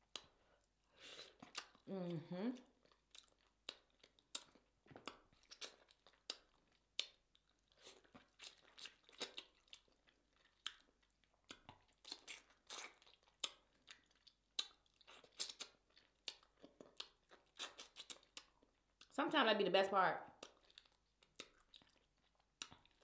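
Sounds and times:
wet chewing and lip-smacking: 0.0 - 19.1, 20.3 - 23.0.

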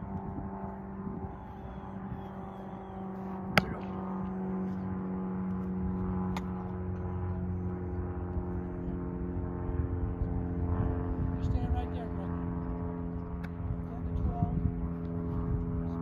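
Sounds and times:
steady mechanical hum: 0.0 - 16.0
football slapping hands: 3.4 - 4.1.

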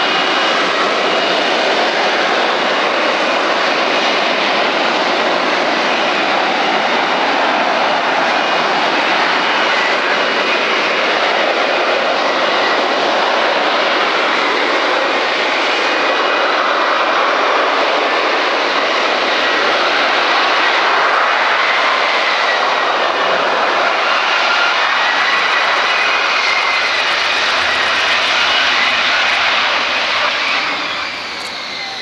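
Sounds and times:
jet engine roaring: 0.0 - 32.0
faint high whining tones: 25.0 - 32.0.

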